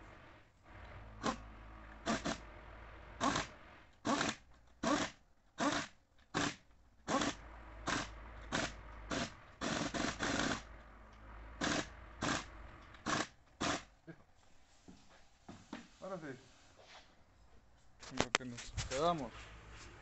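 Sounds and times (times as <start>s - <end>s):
pneumatic tool bursts: 0.0s - 14.0s.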